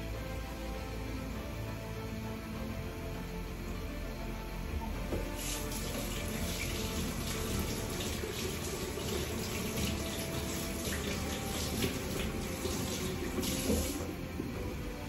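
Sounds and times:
tap running into sink: 5.1s - 14.1s
hands washing splashing: 5.4s - 14.1s.

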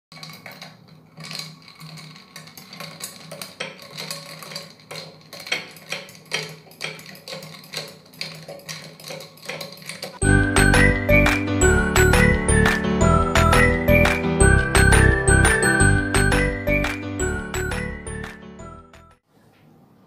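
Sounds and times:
chiming jingle music: 10.2s - 19.2s.

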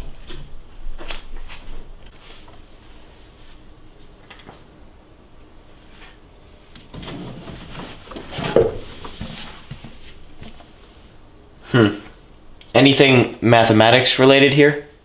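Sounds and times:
book scraping against wooden shelf: 6.8s - 10.7s.

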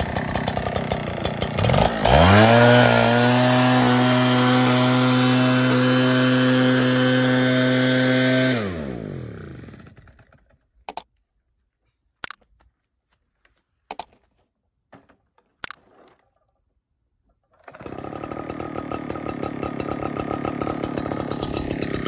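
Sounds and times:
leaf blower engine running: 0.0s - 10.6s, 17.6s - 22.0s
sharp clicks and knocks: 10.4s - 12.8s, 13.4s - 16.5s.

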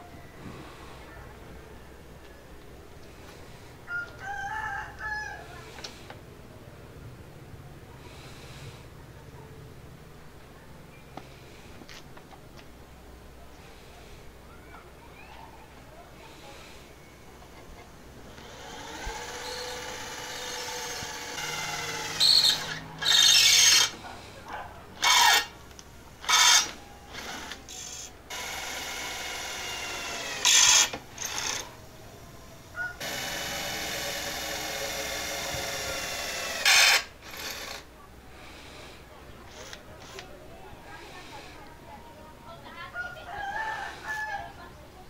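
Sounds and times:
electric drill running: 18.2s - 24.0s, 25.0s - 25.6s, 26.2s - 31.8s, 33.0s - 37.9s.

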